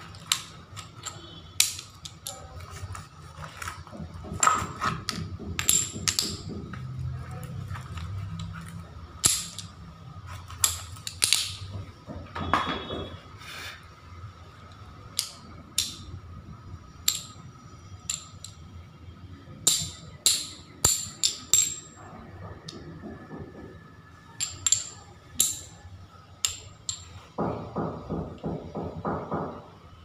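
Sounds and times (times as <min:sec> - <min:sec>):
ceramic tiles clicking on table: 0:00.0 - 0:11.9, 0:14.6 - 0:16.2, 0:16.8 - 0:18.7, 0:19.6 - 0:22.0, 0:24.3 - 0:27.2.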